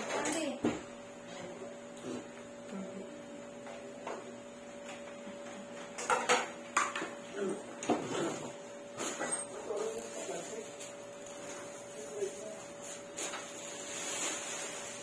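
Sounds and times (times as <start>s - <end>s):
steady electrical hum: 0.0s - 15.0s
dishes clinking and knocking: 5.9s - 7.2s.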